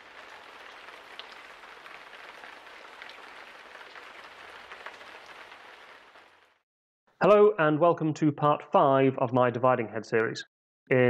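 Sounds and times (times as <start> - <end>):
rain-like patter with crackles: 0.0 - 6.6.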